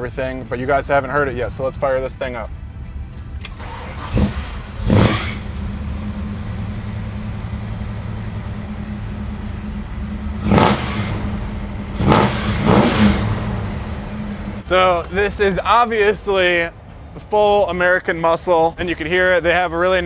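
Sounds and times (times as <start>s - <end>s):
car engine idling: 3.4s - 17.0s
engine revving: 3.6s - 14.6s.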